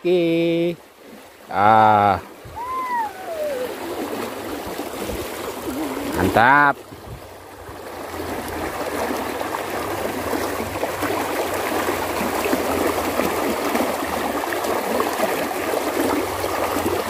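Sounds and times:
water rushing in a ditch: 0.0s - 17.0s.

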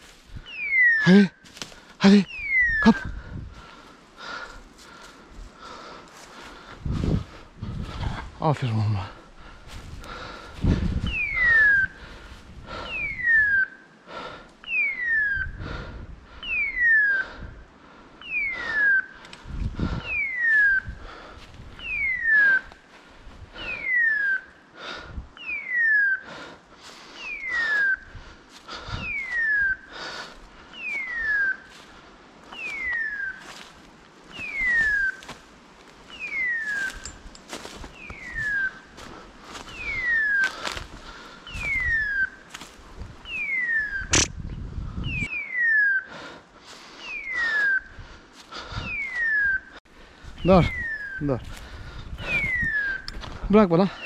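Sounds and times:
footsteps rustling through dry leaves: 0.0s - 0.4s, 9.6s - 11.1s, 30.1s - 43.6s, 49.9s - 52.6s.

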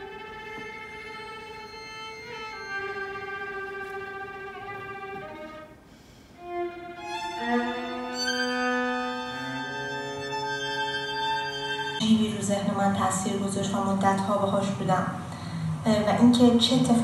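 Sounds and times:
low cello note: 0.0s - 12.2s
string quartet playing held notes: 0.0s - 15.0s.

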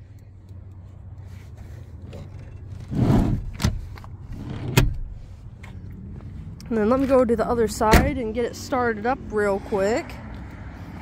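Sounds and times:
seat latch and door clicks: 2.2s - 5.2s.

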